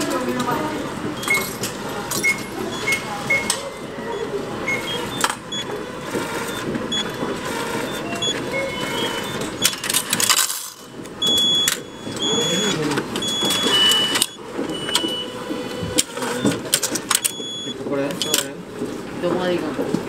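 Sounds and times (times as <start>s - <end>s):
ticket machine clicking and whirring: 0.0s - 20.0s
short high beeps: 2.2s - 5.7s, 11.2s - 16.6s
coins dropping into tray: 9.7s - 10.9s.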